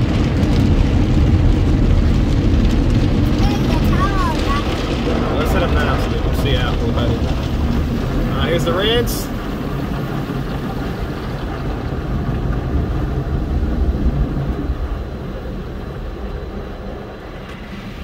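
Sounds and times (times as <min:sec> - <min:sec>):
water spraying on a vehicle: 0:00.0 - 0:18.0.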